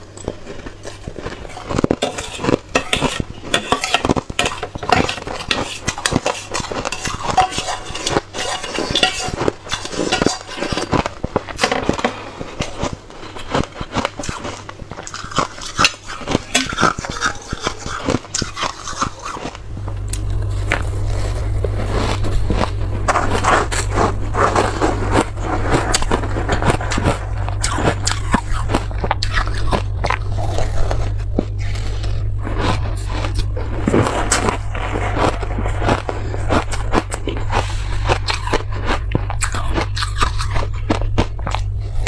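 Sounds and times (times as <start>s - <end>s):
crunching and chewing ice: 0.0s - 42.0s
steady low hum: 0.0s - 42.0s
metal spoon scraping metal bowl: 0.9s - 19.6s.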